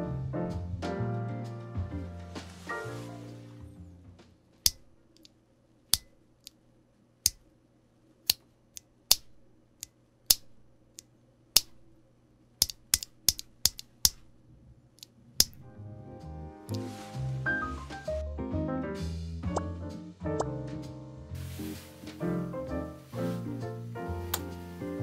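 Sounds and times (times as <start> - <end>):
keyboard switch clicking: 12.6 - 14.3, 15.4 - 15.6.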